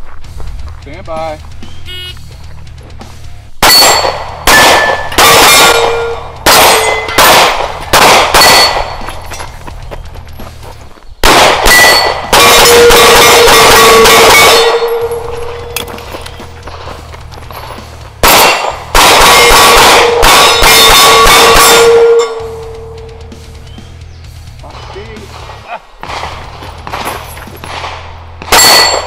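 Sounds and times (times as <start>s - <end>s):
steel targets clanging and ringing: 3.6s - 7.6s, 8.3s - 9.6s, 11.7s - 16.9s, 17.5s - 23.4s, 28.5s - 29.0s
handgun shots: 3.6s - 9.2s, 11.2s - 16.4s, 18.2s - 22.2s, 25.3s - 29.0s.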